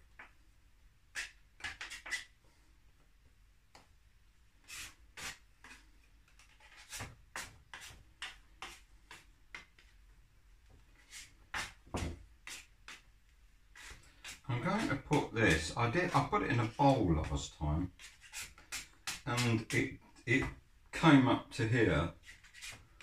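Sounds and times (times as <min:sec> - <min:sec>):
dough scraper scraping on wood: 0:01.2 - 0:02.3, 0:04.6 - 0:09.9, 0:11.0 - 0:13.1, 0:13.7 - 0:20.2, 0:22.1 - 0:23.0.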